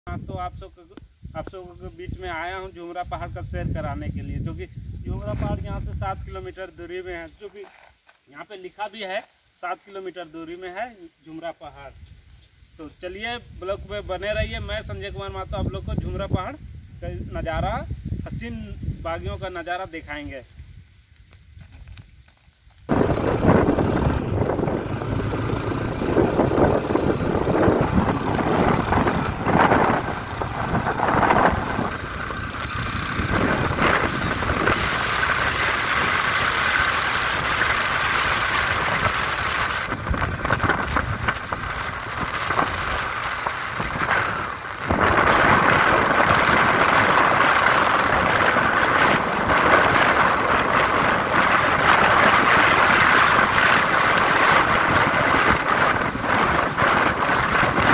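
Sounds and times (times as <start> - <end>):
wind buffeting microphone: 0.1 - 7.2, 13.4 - 19.6, 22.8 - 57.9
motorcycle engine running: 22.9 - 57.9.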